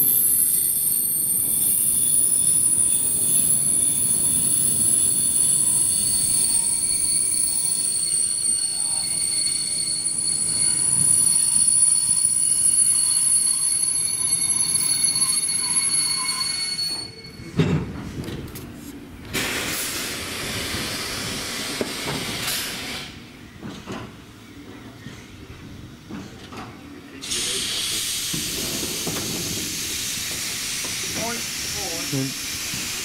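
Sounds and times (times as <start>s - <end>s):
train brakes squealing: 0.0s - 18.0s, 27.2s - 33.0s
hiss of escaping steam: 19.3s - 23.2s, 27.2s - 33.0s
train clunk stopping: 19.3s - 25.3s, 26.0s - 31.3s.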